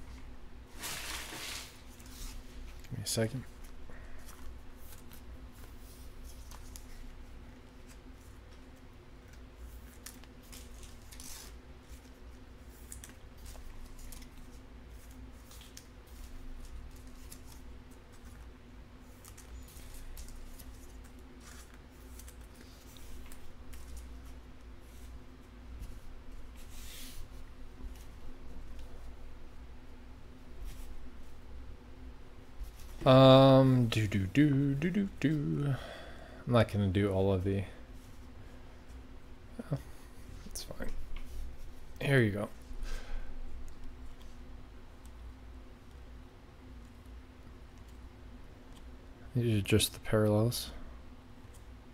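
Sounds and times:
low electrical hum: 0.0s - 51.9s
cards clicking and rustling: 19.1s - 24.4s.

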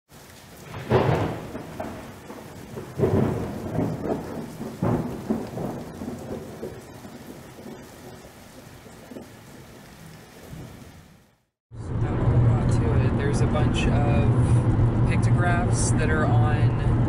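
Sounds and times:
steady rain: 0.1s - 11.6s
thunder rolling: 0.2s - 15.1s.

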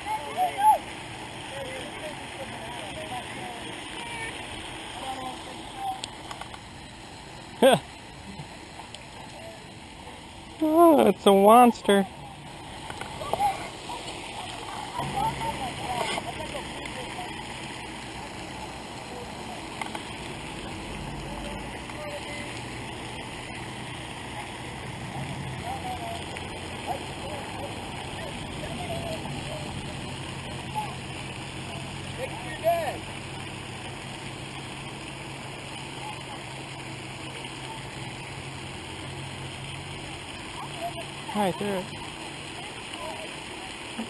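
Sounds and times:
constant low hum: 0.0s - 44.0s
fountain splashing hiss: 0.0s - 44.0s
small ticks: 6.0s - 6.7s.

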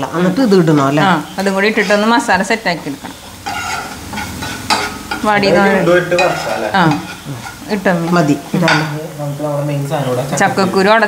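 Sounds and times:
food sizzling: 0.0s - 11.0s
spoon scraping frying pan: 1.2s - 9.0s.

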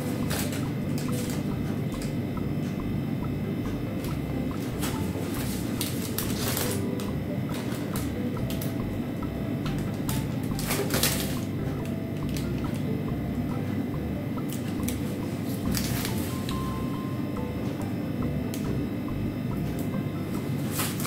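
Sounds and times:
steady low hum: 0.0s - 21.0s
plastic piping bag crinkling: 4.8s - 6.9s, 10.0s - 11.5s.

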